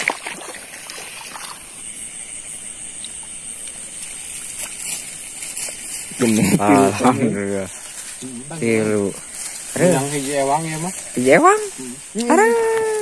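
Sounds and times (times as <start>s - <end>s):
shallow water sloshing and trickling: 0.0s - 2.1s
steady high-pitched hiss: 0.0s - 13.0s.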